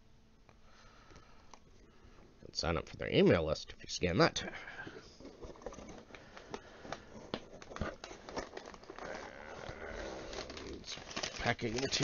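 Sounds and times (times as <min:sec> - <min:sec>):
packing paper rustling and crinkling: 0:05.0 - 0:12.0.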